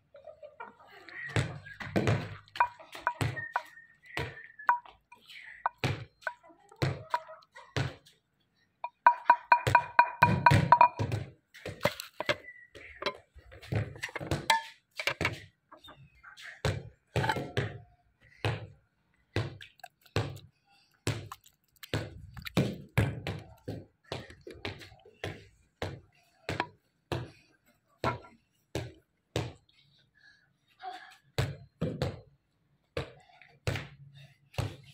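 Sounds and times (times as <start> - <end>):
wooden spoon knocking wooden bowl: 2.5 - 3.6, 4.7 - 6.4, 8.8 - 11.1, 11.8 - 12.4, 13.0 - 13.2, 13.9 - 15.4, 17.2 - 17.6.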